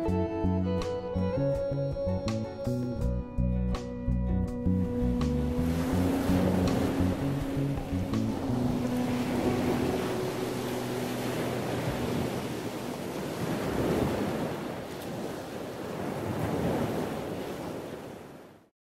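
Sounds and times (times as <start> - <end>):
ocean waves washing in: 4.6 - 18.7.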